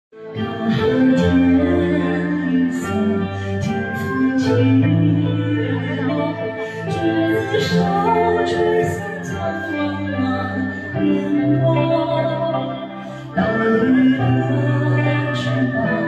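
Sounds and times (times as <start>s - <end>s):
backing track with bass: 0.2s - 16.0s
man singing into microphone: 13.4s - 16.0s.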